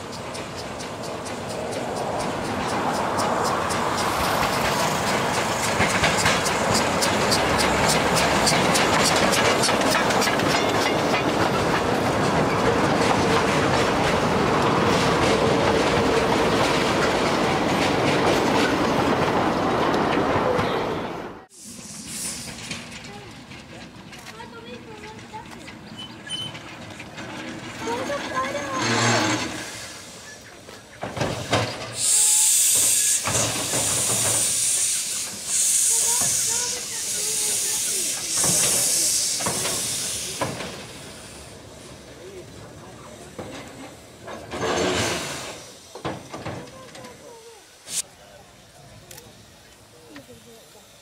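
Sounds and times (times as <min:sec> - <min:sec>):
steam hissing from locomotive: 0:00.0 - 0:12.6, 0:21.5 - 0:23.2, 0:28.7 - 0:51.0
train wheels clicking over rail joints: 0:00.0 - 0:20.7, 0:21.7 - 0:51.0
faint wheel squeal: 0:25.9 - 0:26.7.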